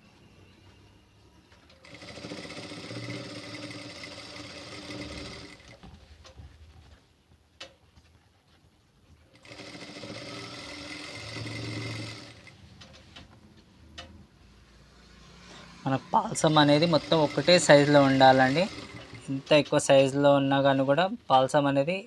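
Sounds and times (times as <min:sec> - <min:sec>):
sewing machine stitching: 0:01.7 - 0:05.8, 0:09.3 - 0:13.0, 0:16.3 - 0:19.7.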